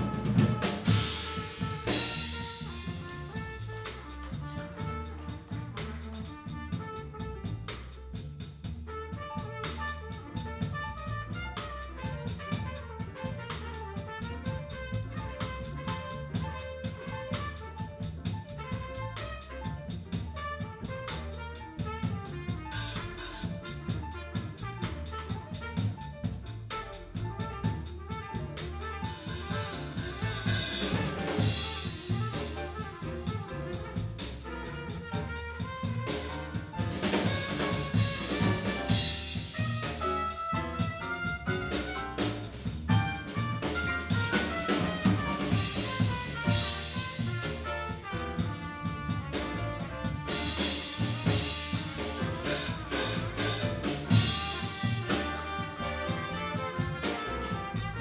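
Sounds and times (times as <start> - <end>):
saxophone: 0.0 - 5.2, 49.3 - 58.0
double bass: 0.0 - 58.0
drum kit: 0.0 - 58.0
piano: 0.0 - 58.0
trombone: 0.0 - 58.0
trumpet: 0.0 - 58.0.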